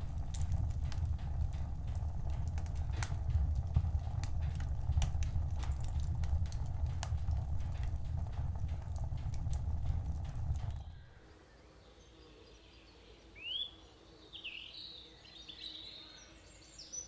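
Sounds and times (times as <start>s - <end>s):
low steady rumble: 0.0s - 11.3s
wood fire crackling: 0.0s - 11.3s.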